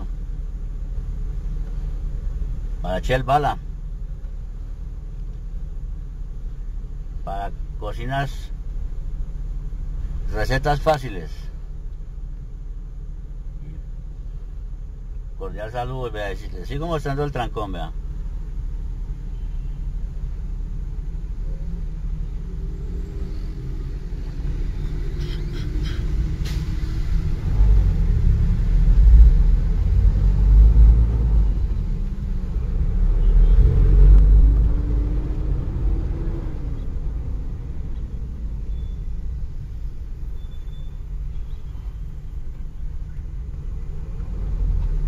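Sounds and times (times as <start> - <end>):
car engine and road rumble: 0.0 - 45.0.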